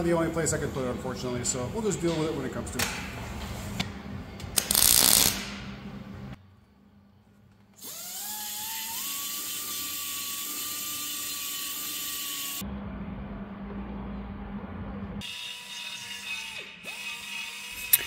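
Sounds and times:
pneumatic die grinder whining: 0:07.8 - 0:12.6, 0:15.2 - 0:18.0.

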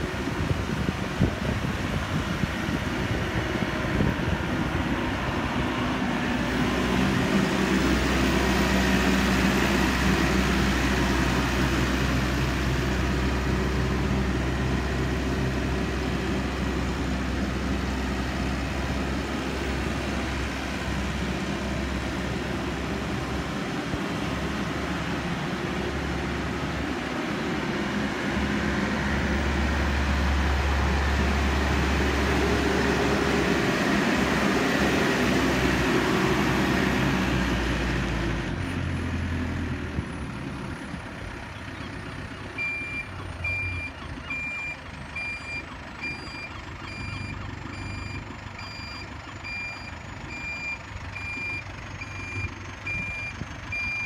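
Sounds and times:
diesel engine running: 0:00.0 - 0:54.0
reversing alarm beeps: 0:42.6 - 0:54.0.

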